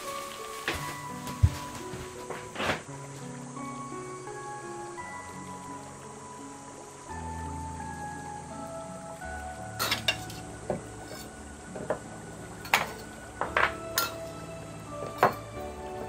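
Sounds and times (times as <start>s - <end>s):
soft background music: 0.0s - 16.0s.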